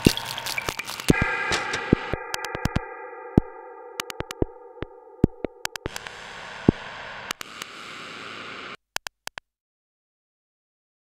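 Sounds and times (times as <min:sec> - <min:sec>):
sharp irregular clicks: 0:00.0 - 0:06.1, 0:06.7 - 0:07.7, 0:08.9 - 0:09.4
held synthesizer chord: 0:01.1 - 0:06.1
hiss of noise: 0:05.8 - 0:08.8.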